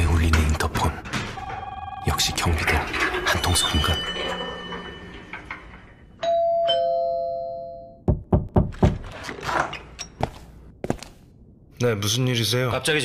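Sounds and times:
intercom door chime ding-dong: 6.2s - 8.0s.

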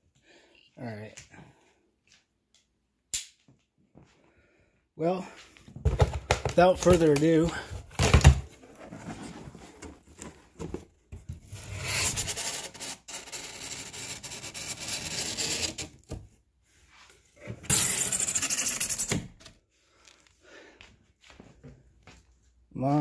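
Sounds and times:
cardboard box flaps scraping: 8.6s - 12.5s.

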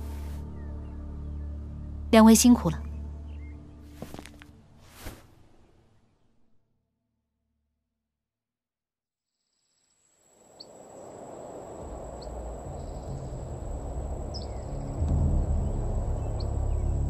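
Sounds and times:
low drone: 11.7s - 17.0s
bird chirps: 12.1s - 17.0s.

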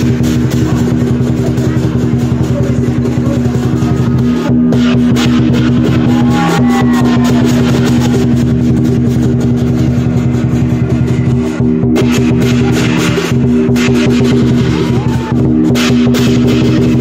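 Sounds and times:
cymbals and gong ringing: 0.0s - 17.0s
large drum beating: 0.0s - 17.0s.

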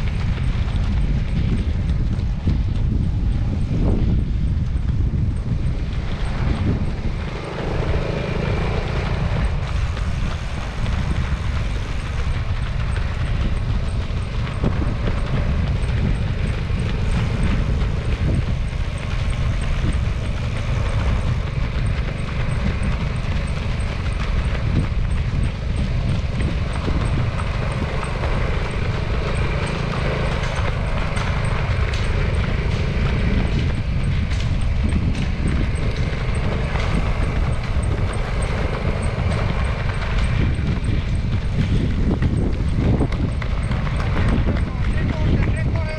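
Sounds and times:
faint footfalls of runners: 0.0s - 45.9s
moving vehicle rumble: 0.0s - 45.9s
wind on microphone: 0.0s - 45.9s.

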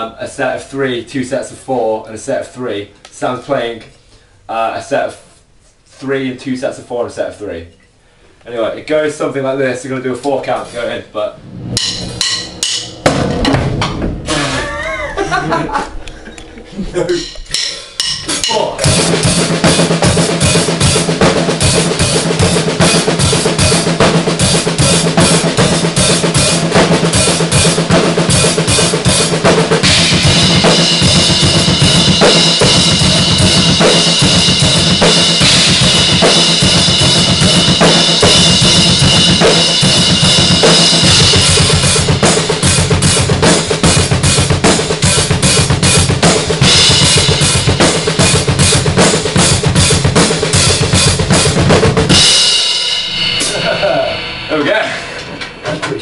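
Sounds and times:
drum kits playing: 10.4s - 56.0s
held cymbal wash: 11.2s - 48.8s, 52.1s - 56.0s.

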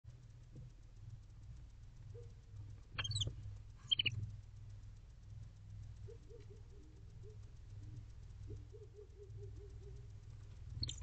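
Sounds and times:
steady low hum: 0.0s - 11.0s
owl high-pitched chirping calls: 3.0s - 4.2s, 10.8s - 11.0s.

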